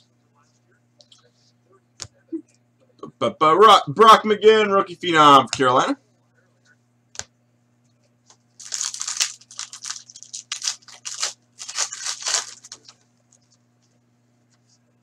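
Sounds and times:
foil wrapper tearing and crinkling: 8.6s - 13.0s.

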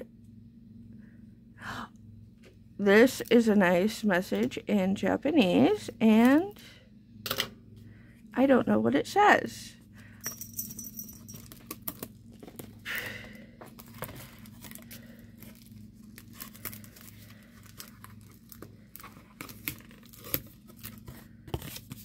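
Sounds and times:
packaging rustle: 13.6s - 22.0s
packaging crinkling and tearing: 13.7s - 22.0s.

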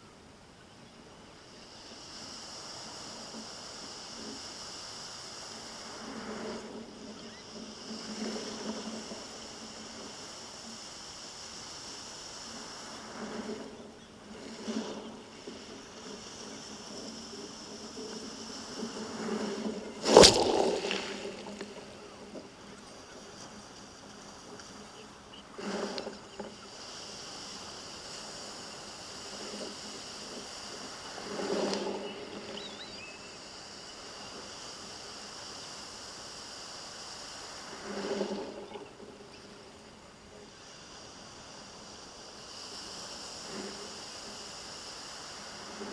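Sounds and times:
steady hiss: 0.0s - 45.9s
sea surf washing over beach cobbles: 1.4s - 45.9s.

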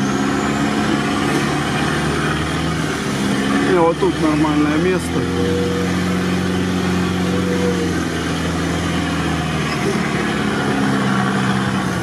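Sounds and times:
off-road vehicle engine running: 0.0s - 12.0s.

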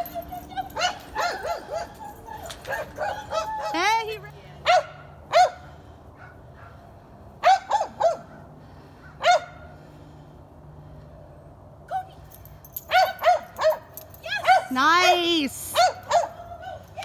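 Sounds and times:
small dog yipping: 0.0s - 4.0s, 15.8s - 17.0s.

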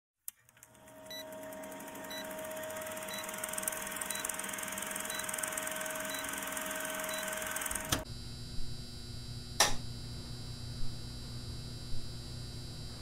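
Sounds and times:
film projector clattering: 0.4s - 8.0s.

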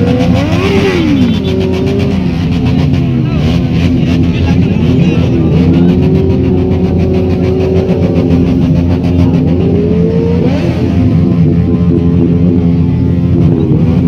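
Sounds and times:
motorcycle engine revving: 0.0s - 14.0s.

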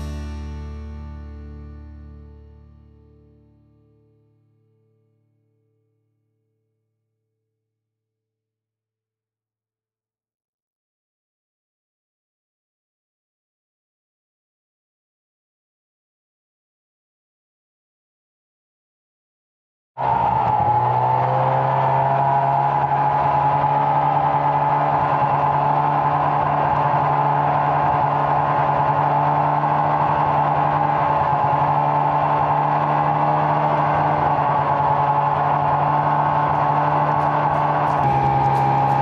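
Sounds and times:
track and wind noise: 20.0s - 39.0s
snowmobile engine running: 20.3s - 39.0s.

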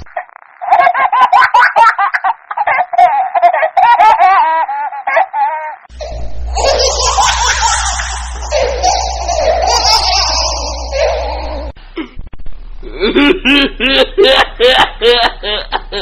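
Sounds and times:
baby giggling: 0.6s - 11.7s
child laughing: 0.6s - 11.8s
low hum: 5.9s - 16.0s.

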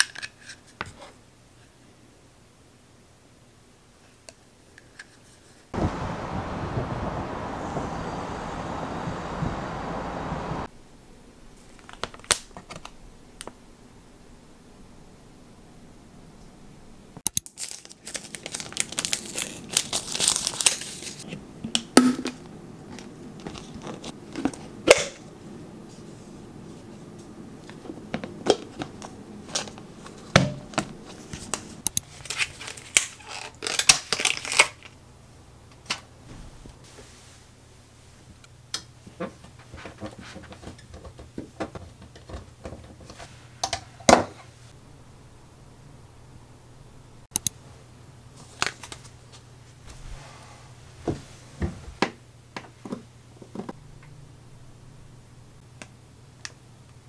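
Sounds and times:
packaging crinkling and tearing: 17.4s - 21.2s, 32.1s - 35.0s.

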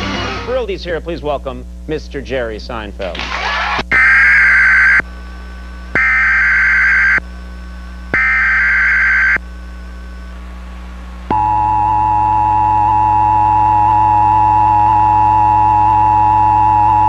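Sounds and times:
digital data tone bursts: 3.9s - 5.0s, 6.0s - 7.2s, 8.2s - 9.4s
two-tone attention signal: 11.3s - 17.0s.

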